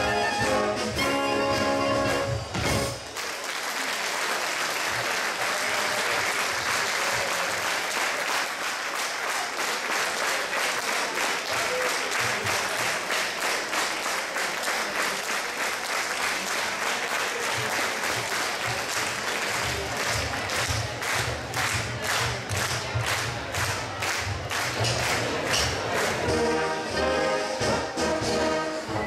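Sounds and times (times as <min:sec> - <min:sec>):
brass band chord: 0:00.0 - 0:03.0, 0:26.2 - 0:29.0
audience applauding: 0:03.0 - 0:26.4.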